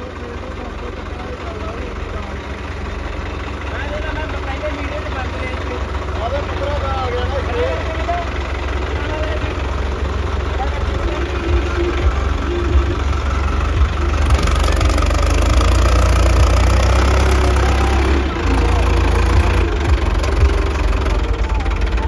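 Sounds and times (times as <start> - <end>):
tractor engine working hard: 0.0 - 22.0.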